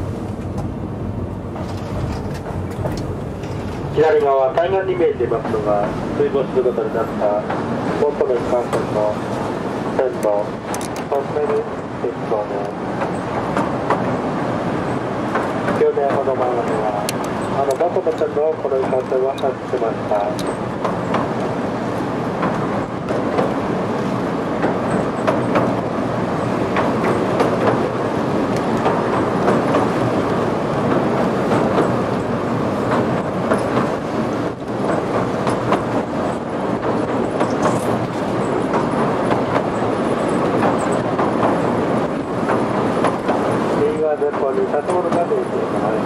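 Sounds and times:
train wheels rumbling on rail: 0:00.0 - 0:46.0
sharp rail clicks: 0:10.0 - 0:46.0.

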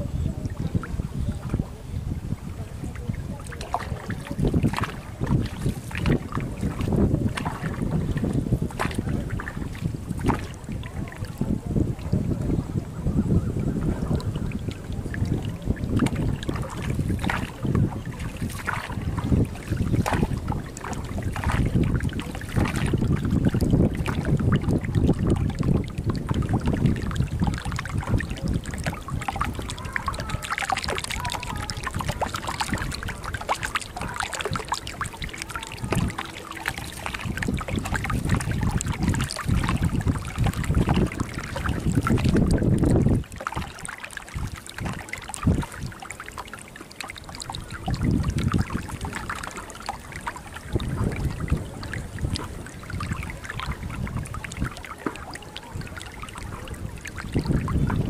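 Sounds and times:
water gurgling along boat hull: 0:00.0 - 0:58.0
wind buffeting microphone: 0:00.0 - 0:58.0.

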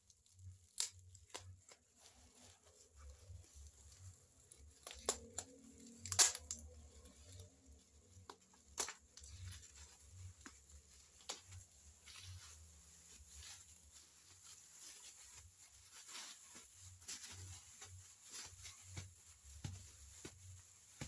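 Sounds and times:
plastic wrapping rustling: 0:00.0 - 0:21.0
packing tape ripping: 0:04.7 - 0:07.0.

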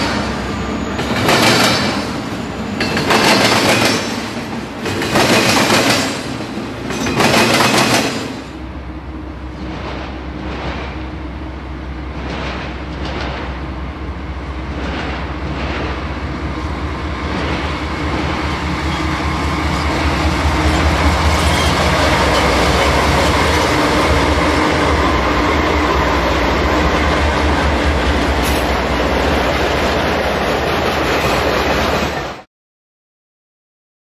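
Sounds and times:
diesel locomotive engine running: 0:00.0 - 0:32.4
train wheels rolling on rails: 0:00.0 - 0:32.5.

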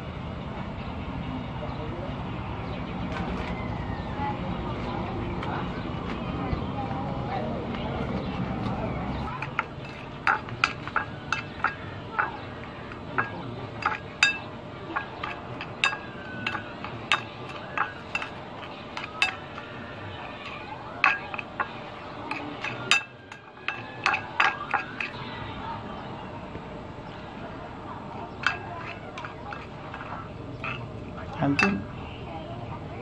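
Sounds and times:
metal spoon clinking ceramic bowl: 0:09.4 - 0:25.2, 0:28.3 - 0:32.0.

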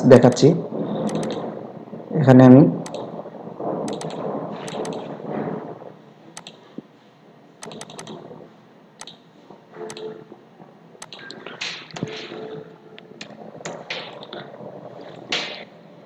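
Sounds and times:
mouse and keyboard clicks: 0:01.1 - 0:01.4, 0:03.9 - 0:05.0, 0:07.6 - 0:08.2, 0:11.0 - 0:12.3.

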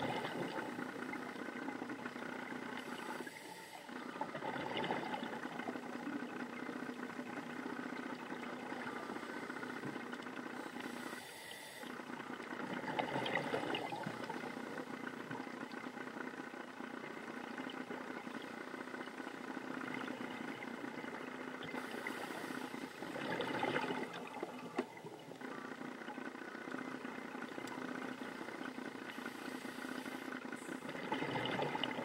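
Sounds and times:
exhaled bubbles rushing: 0:00.0 - 0:03.2, 0:03.9 - 0:11.0, 0:12.0 - 0:15.9, 0:22.9 - 0:25.6, 0:30.7 - 0:32.0
underwater engine hum: 0:00.0 - 0:32.0
diver regulator breathing: 0:08.9 - 0:11.9, 0:21.7 - 0:23.2, 0:28.3 - 0:30.9.

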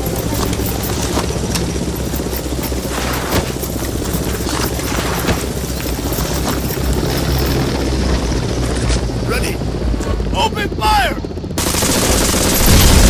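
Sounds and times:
helicopter running: 0:00.0 - 0:13.0
sharp gunshots: 0:11.6 - 0:13.0.

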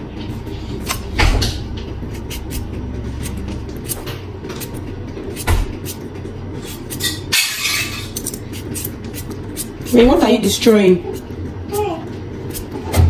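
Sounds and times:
knife scraping potato skin: 0:02.0 - 0:04.0, 0:04.6 - 0:10.3, 0:12.5 - 0:12.8.

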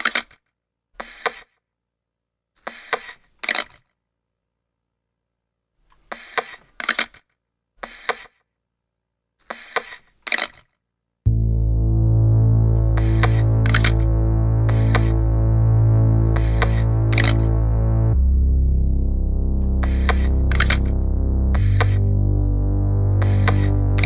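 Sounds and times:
low synthesizer chords: 0:11.3 - 0:24.0.

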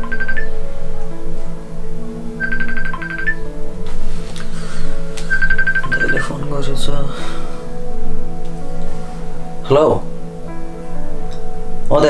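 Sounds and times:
phone musical ringtone: 0:00.0 - 0:00.6, 0:02.4 - 0:03.5, 0:05.3 - 0:06.5.

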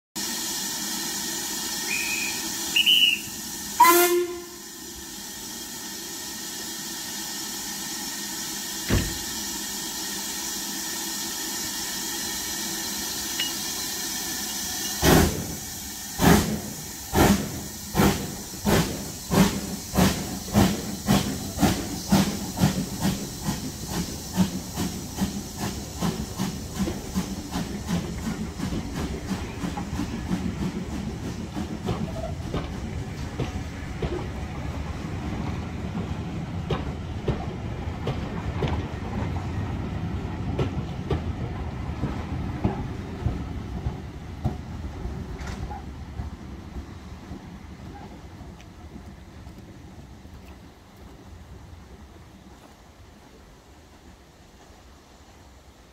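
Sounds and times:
steam hissing: 0:00.2 - 0:50.2
steam locomotive exhaust beats: 0:00.2 - 0:55.9
steam whistle blast: 0:01.7 - 0:04.8
short high whistle notes: 0:01.8 - 0:04.7, 0:13.3 - 0:15.0
thump: 0:08.9 - 0:09.2.

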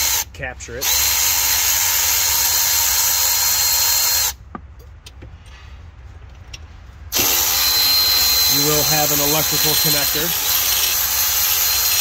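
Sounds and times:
electric ratchet running: 0:00.8 - 0:04.4, 0:07.1 - 0:12.0.

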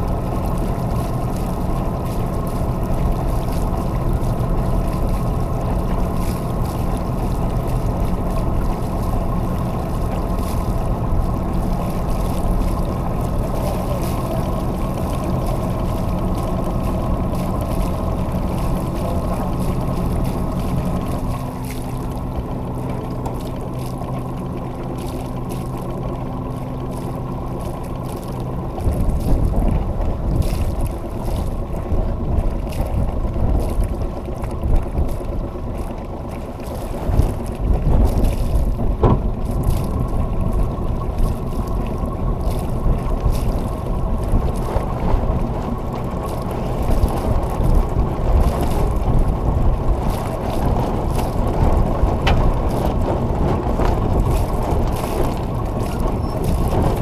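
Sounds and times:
boat engine droning: 0:00.0 - 0:57.0
water rushing past hull: 0:00.0 - 0:57.0
wind gusting on microphone: 0:28.8 - 0:35.7, 0:36.8 - 0:57.0.

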